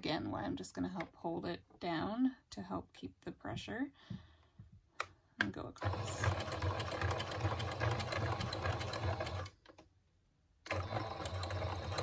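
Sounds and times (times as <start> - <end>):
sewing machine needle strokes: 5.8 - 9.6, 10.7 - 12.0.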